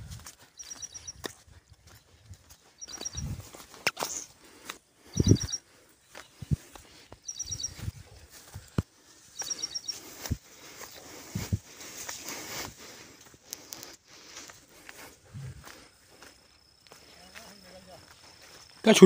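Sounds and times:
footsteps on dirt path: 0.0 - 19.0
small bird chirping: 0.4 - 4.4, 5.0 - 8.1, 9.3 - 10.4.

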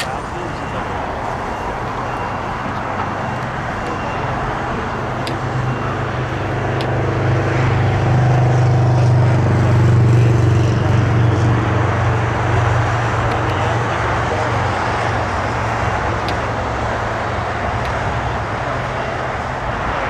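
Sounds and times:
low engine drone: 0.0 - 20.0
outdoor background noise: 0.0 - 20.0.

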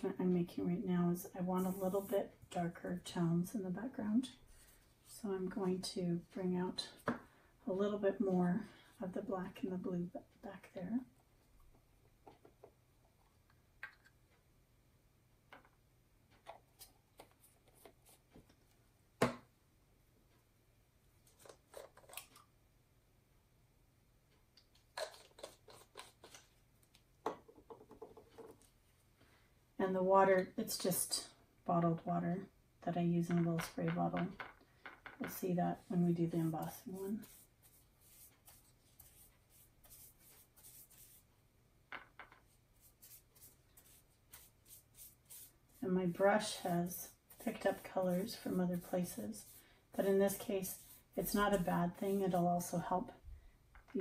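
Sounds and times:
brush swishing across paper: 1.6 - 2.2, 35.7 - 41.3, 42.5 - 52.8.

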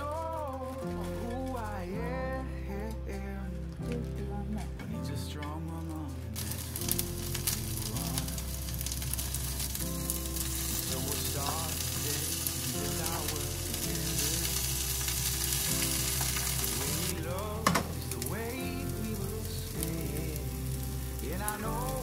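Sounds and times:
greens frying: 0.0 - 22.0
chopsticks stirring: 5.4 - 22.0
fish sizzling in a pan: 6.4 - 22.0.

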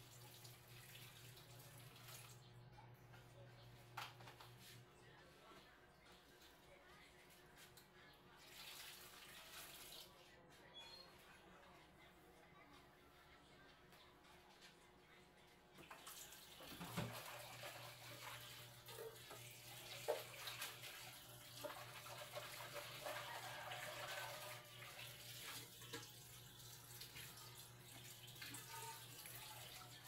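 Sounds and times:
water running and splashing: 15.8 - 30.0.

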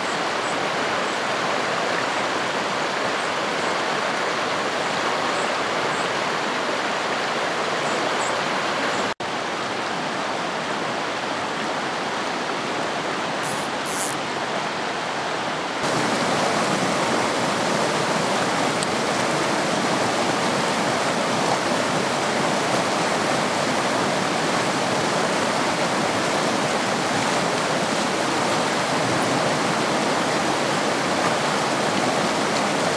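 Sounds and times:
stream water rushing over rocks: 0.0 - 32.9.

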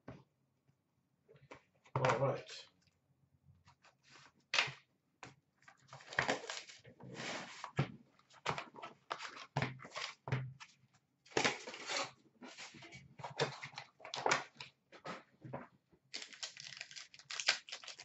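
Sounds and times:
plastic wrap and cardboard crinkling: 5.9 - 6.8, 16.1 - 18.0.

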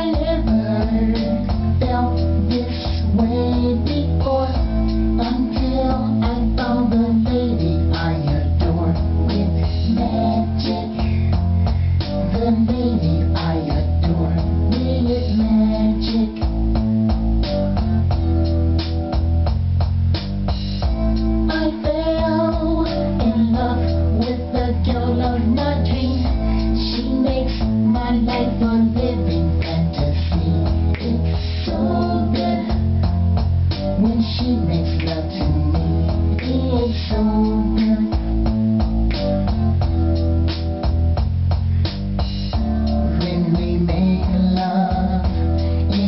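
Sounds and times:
person singing: 0.0 - 11.4, 12.0 - 16.6, 21.4 - 33.2, 33.8 - 38.5, 42.6 - 46.0
pop song with band: 0.0 - 19.6, 20.6 - 46.0.

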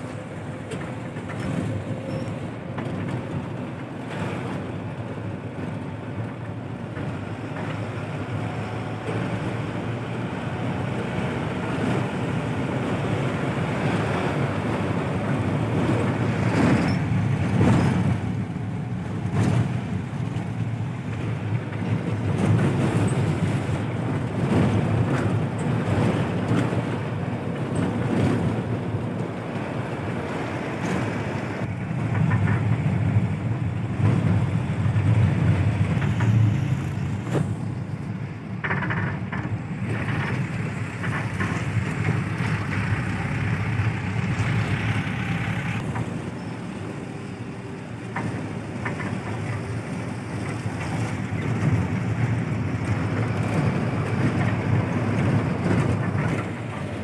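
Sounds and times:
car engine and road noise: 0.0 - 57.0
wind buffeting microphone: 39.2 - 57.0.

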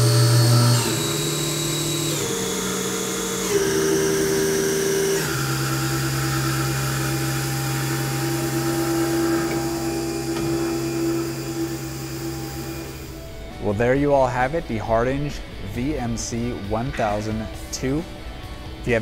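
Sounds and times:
machine spindle whine: 0.0 - 13.8.

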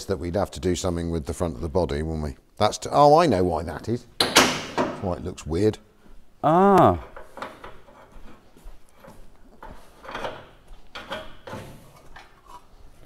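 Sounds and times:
faint knocks and clunks of parts: 7.0 - 13.0.

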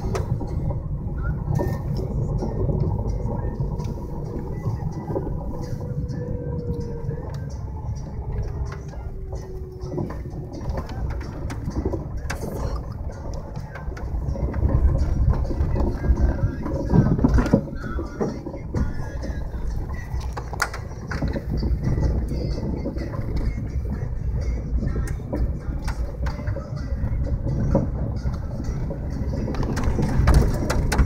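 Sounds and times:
engine and tyres rumbling: 0.0 - 31.0
clicks and knocks: 20.2 - 21.7, 27.6 - 31.0.

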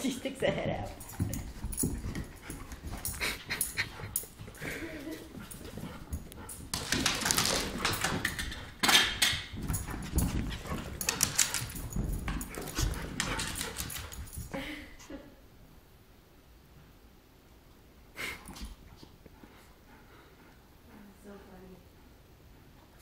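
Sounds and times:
dogs play-fighting: 0.9 - 14.7.

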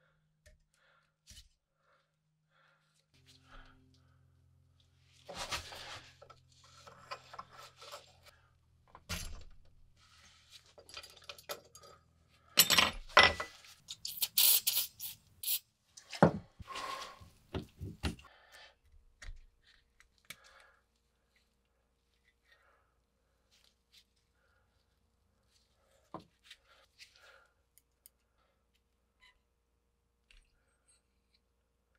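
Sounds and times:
metal pick scraping steel parts: 5.3 - 8.3
metal parts clattering on workbench: 10.7 - 12.0, 12.6 - 13.6.

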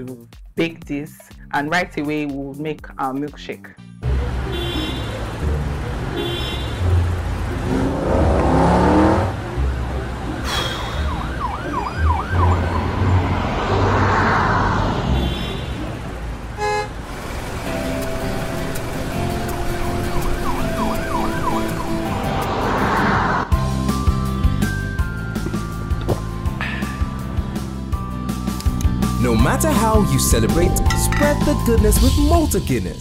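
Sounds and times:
car engines rumbling: 4.0 - 33.0
rising tone: 10.5 - 15.2
siren-like warble: 10.7 - 13.3, 20.2 - 22.2.

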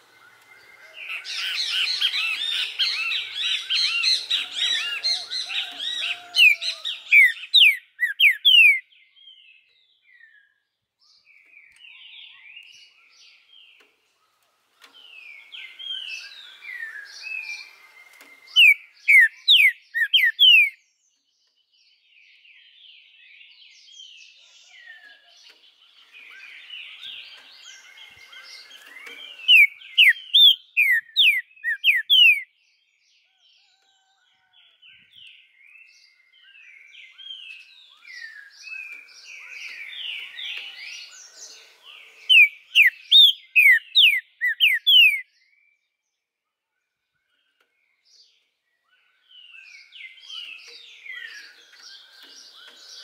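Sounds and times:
bird twittering: 0.0 - 8.9, 14.8 - 20.8, 26.1 - 32.5, 37.1 - 45.3
bird singing whistled notes: 0.0 - 53.0.

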